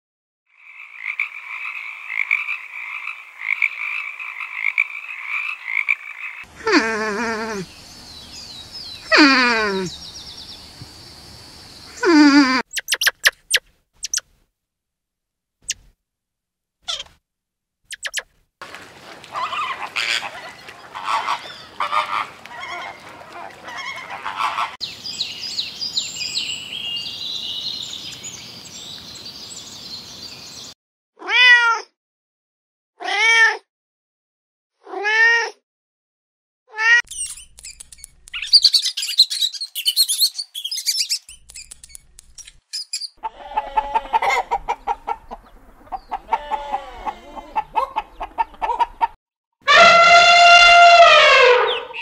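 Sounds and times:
flamingos honking: 0:18.6 - 0:24.8, 0:49.7 - 0:52.0
sharp clicks: 0:37.1 - 0:38.5, 0:41.3 - 0:42.6.

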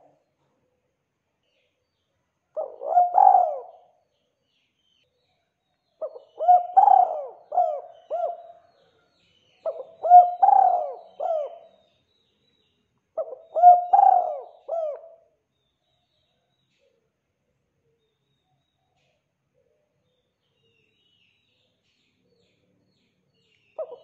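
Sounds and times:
dove cooing: 0:02.6 - 0:03.9, 0:06.0 - 0:08.7, 0:09.6 - 0:11.7, 0:13.2 - 0:15.2, 0:23.8 - 0:24.0.

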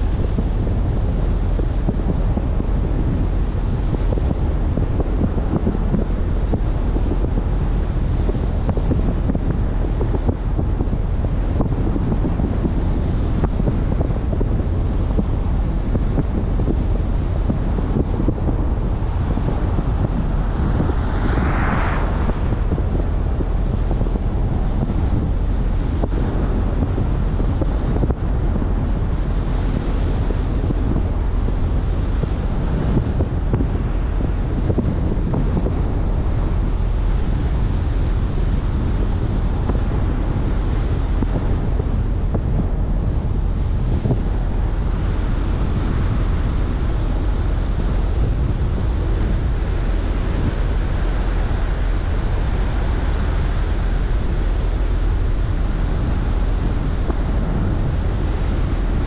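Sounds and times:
wind buffeting microphone: 0:00.0 - 0:59.0
tyre and road noise: 0:17.8 - 0:27.4.

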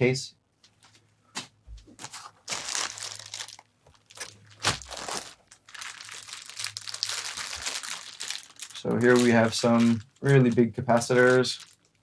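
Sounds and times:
plastic packaging crinkling: 0:02.0 - 0:12.0
sharp plastic crack: 0:02.5 - 0:12.0.

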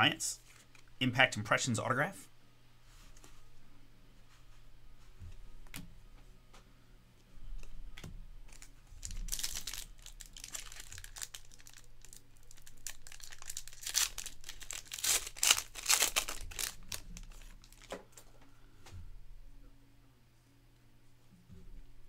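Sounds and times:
foil wrapper crinkling and tearing: 0:08.5 - 0:18.0.

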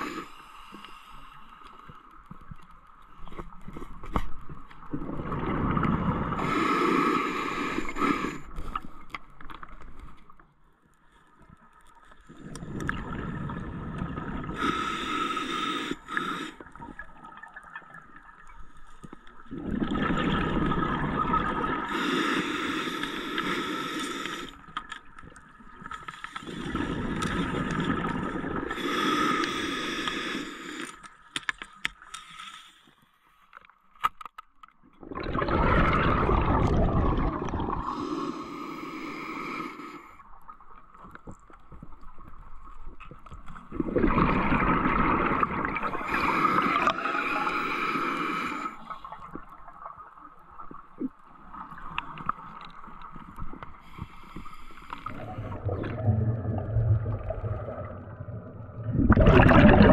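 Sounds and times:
bubbles gurgling: 0:04.9 - 0:06.5, 0:12.4 - 0:14.6, 0:19.4 - 0:22.0, 0:26.5 - 0:28.8, 0:35.0 - 0:38.0, 0:43.7 - 0:47.3, 0:55.0 - 0:59.9
diver breathing through regulator: 0:06.2 - 0:09.0, 0:14.5 - 0:16.8, 0:21.9 - 0:24.7, 0:28.7 - 0:31.1, 0:37.8 - 0:40.2, 0:45.9 - 0:49.0, 0:53.8 - 0:56.6.

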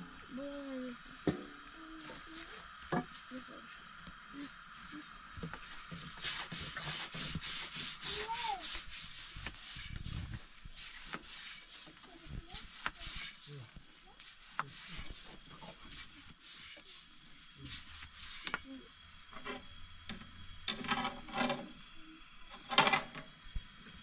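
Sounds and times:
rolling pin rubbing dough: 0:05.9 - 0:18.6.

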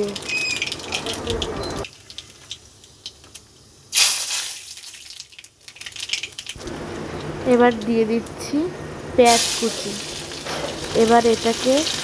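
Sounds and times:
spices sizzling in hot oil: 0:00.0 - 0:08.3, 0:09.2 - 0:12.0.

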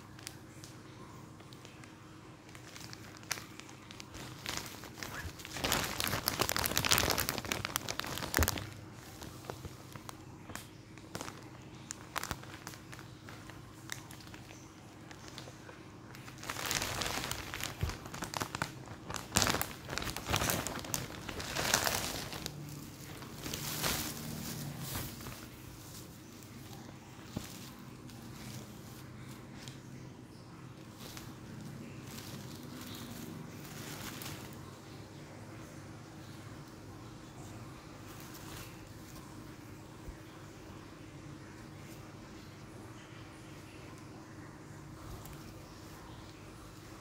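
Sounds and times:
plastic bag crinkling: 0:00.0 - 0:35.0, 0:37.4 - 0:40.4.

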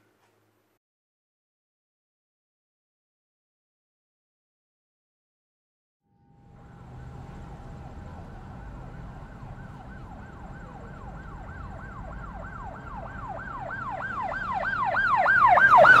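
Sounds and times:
low steady rumble: 0:06.1 - 0:15.1
siren yelping: 0:06.8 - 0:16.0.

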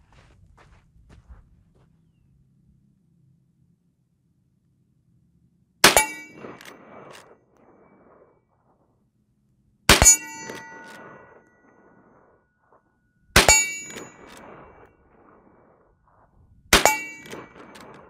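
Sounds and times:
rifle shots with metallic clang: 0:05.8 - 0:08.8, 0:09.9 - 0:18.0.

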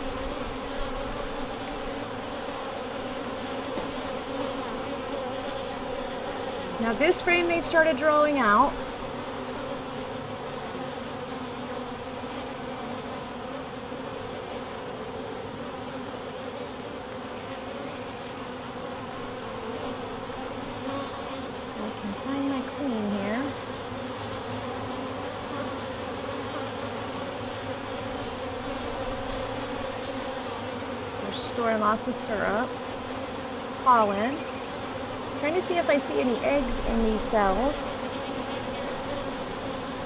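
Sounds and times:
honeybees buzzing: 0:00.0 - 0:40.0.

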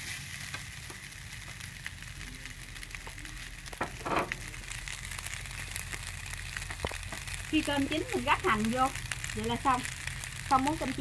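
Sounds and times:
rice sizzling in a wok: 0:00.0 - 0:11.0
spatula scraping wok: 0:03.8 - 0:04.5.

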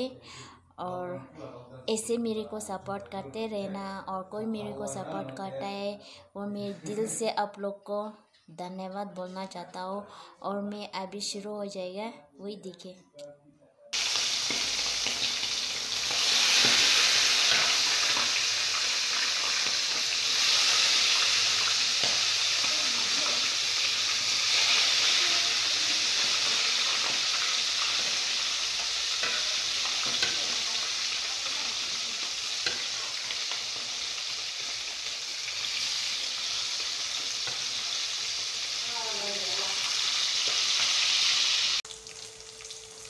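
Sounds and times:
chicken frying in oil: 0:14.0 - 0:43.0.

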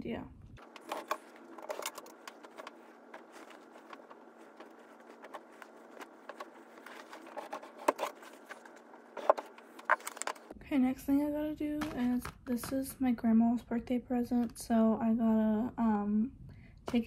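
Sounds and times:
soft rustling: 0:00.6 - 0:10.5.

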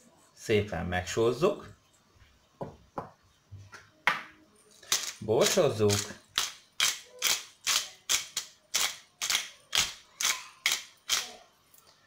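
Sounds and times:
pepper mill grinding: 0:04.7 - 0:11.4.

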